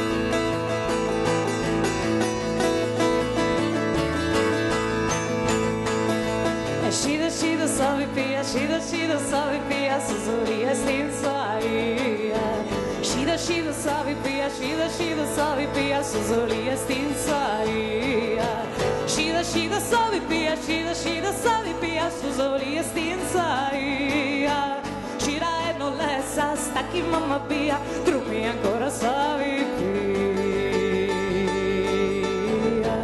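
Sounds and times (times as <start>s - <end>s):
acoustic guitar: 0.0s - 33.0s
drums: 0.0s - 33.0s
electric bass: 0.0s - 33.0s
woman singing: 6.7s - 33.0s.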